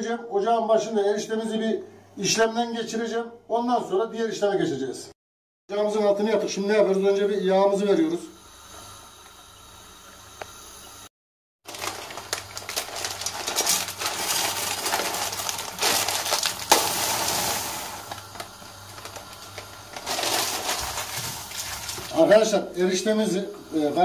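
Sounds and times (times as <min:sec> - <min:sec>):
dry noodles crackling into a pan: 0:11.6 - 0:22.3
plastic bag rustling: 0:11.6 - 0:22.5.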